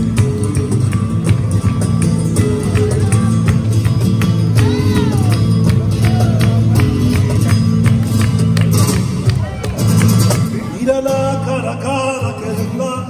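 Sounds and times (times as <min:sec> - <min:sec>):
rhythmic hand clapping: 0:00.0 - 0:11.0
cajon drum: 0:00.0 - 0:13.0
strummed acoustic guitar: 0:00.0 - 0:13.0.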